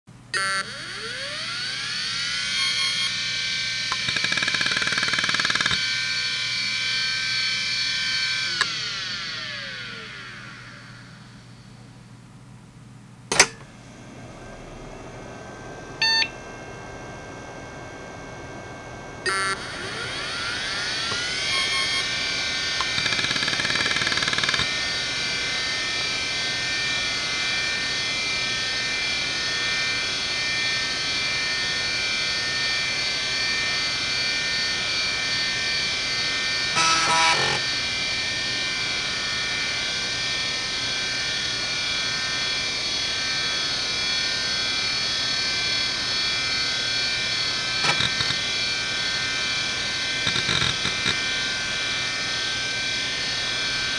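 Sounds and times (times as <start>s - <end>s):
hard drive high-pitched whine: 0.1s - 53.9s
hard drive head-seek noise: 0.4s - 6.6s, 13.4s - 24.8s, 36.6s - 37.9s, 47.2s - 51.5s
hard drive clicks: 50.2s - 51.2s.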